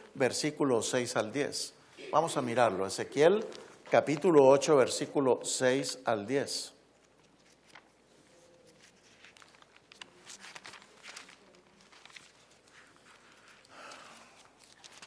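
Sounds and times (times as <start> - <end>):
thin pages rustling: 6.9 - 15.0.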